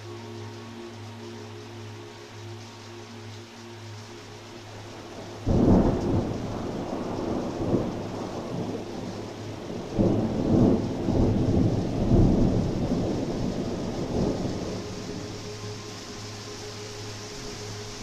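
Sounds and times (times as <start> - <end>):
rolling thunder rumble: 5.1 - 15.8.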